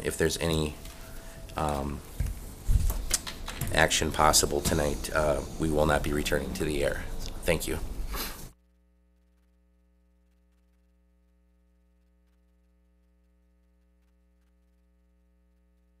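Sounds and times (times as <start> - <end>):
person's voice: 0.0 - 0.9, 1.5 - 2.1, 3.6 - 7.9
faint mains hum: 0.0 - 16.0.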